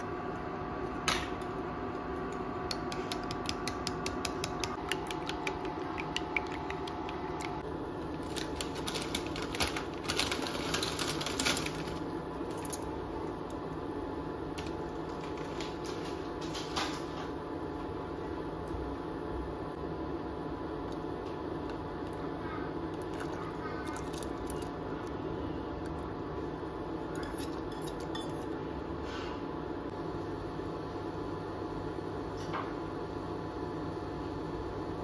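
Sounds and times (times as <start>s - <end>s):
steady hum: 0.0s - 35.0s
fork beating eggs in glass bowl: 2.2s - 7.6s.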